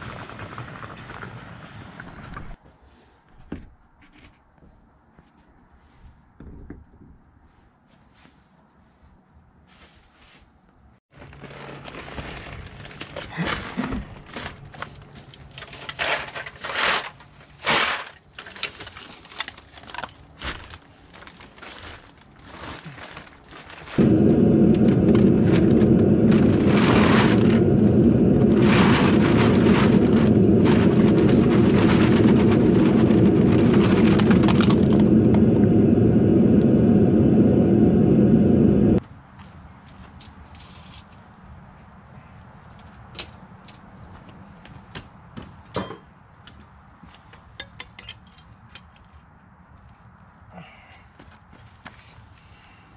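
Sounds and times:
plastic bag rustling: 11.1 - 35.3
loud low rumble: 24.0 - 39.0.

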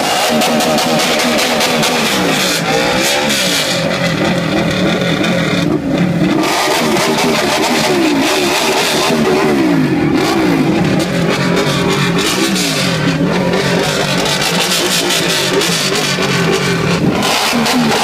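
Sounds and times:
motorcycle engine revving: 0.0 - 18.0.

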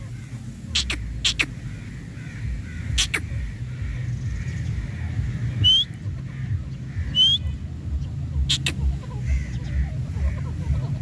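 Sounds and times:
bird harsh calls: 0.0 - 11.0
steady low rumble: 0.0 - 11.0
bird shrill rising whistles: 5.6 - 5.9, 7.2 - 7.4.

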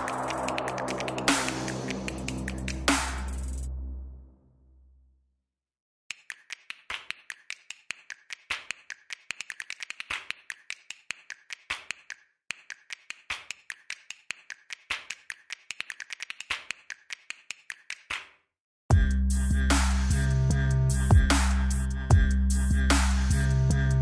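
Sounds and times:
sharp clicks and taps: 6.1 - 18.3.

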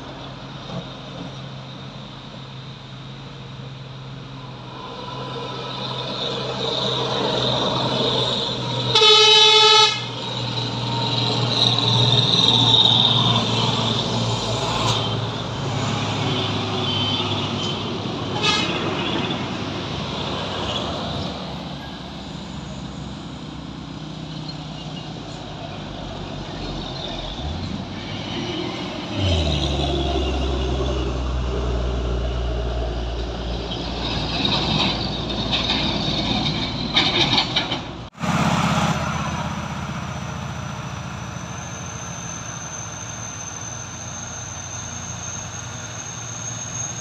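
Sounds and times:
truck diesel engines passing: 0.0 - 47.0
truck horn blast: 8.9 - 10.2, 18.4 - 19.0.

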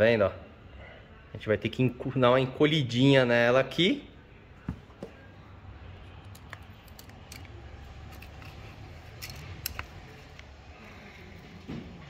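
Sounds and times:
metallic tool clicks and scrapes: 6.2 - 10.6.

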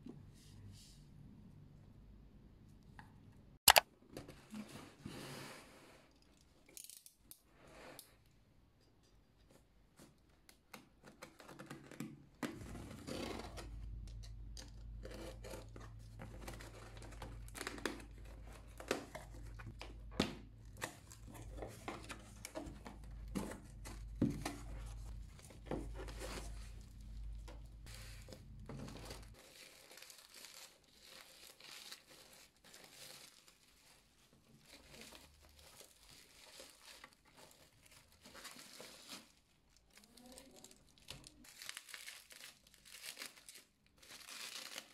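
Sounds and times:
bubble wrap crinkling: 20.6 - 44.9.

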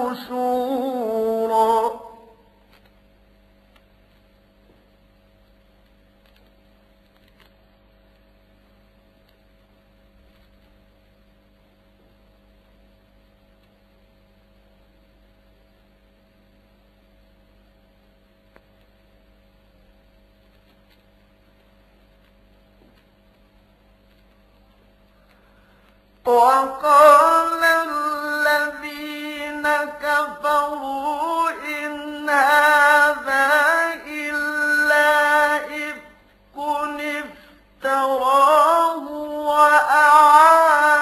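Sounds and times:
faint electrical hum and hiss: 0.0 - 41.0
faint clicks: 5.8 - 8.3, 9.2 - 9.5, 20.1 - 26.3.

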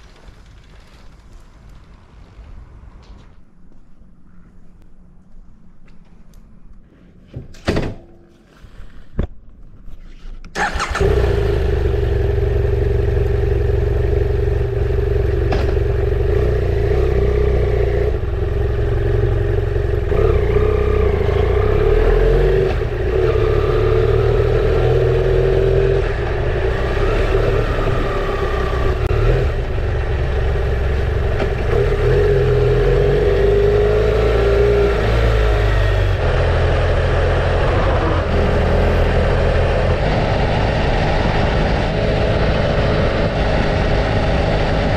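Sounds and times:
motorcycle engine revving: 10.6 - 44.9
wind rumble on microphone: 37.3 - 44.9.

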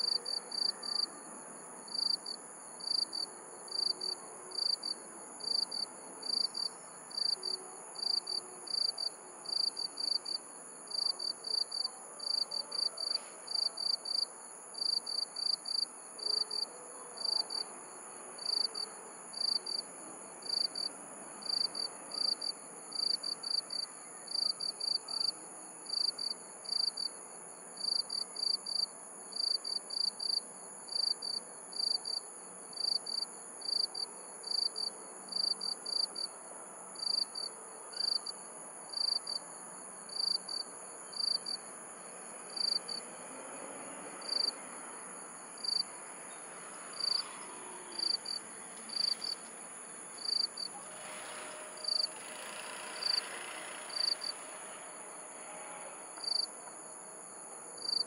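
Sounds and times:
crickets chirping: 0.0 - 58.0
high insect trill: 44.2 - 58.0.

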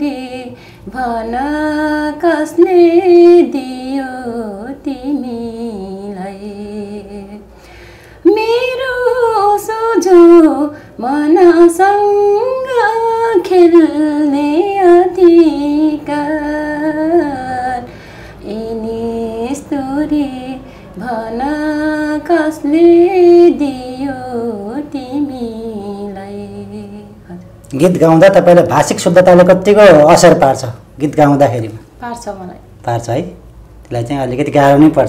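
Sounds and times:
woman singing a slow song: 0.0 - 27.7.

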